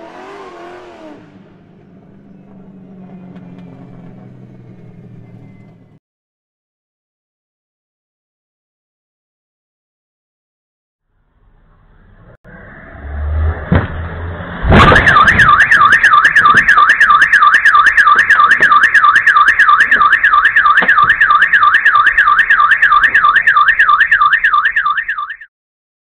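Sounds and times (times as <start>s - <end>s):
car crash thud: 14.6s - 16.8s
car alarm warbling: 14.7s - 25.5s.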